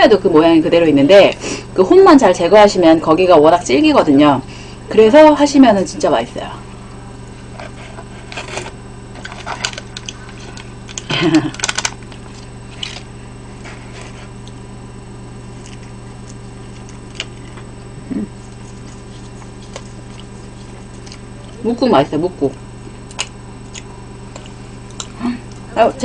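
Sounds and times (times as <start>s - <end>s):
low electrical hum: 0.0s - 26.0s
plastic glove rustling: 15.4s - 21.7s.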